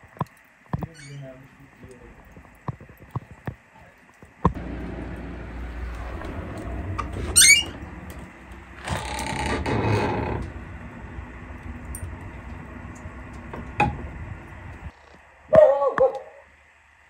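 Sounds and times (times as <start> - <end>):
door hinge squealing: 0.9 - 1.2, 7.0 - 8.2, 8.8 - 10.7
wooden door scraping: 5.7 - 15.0.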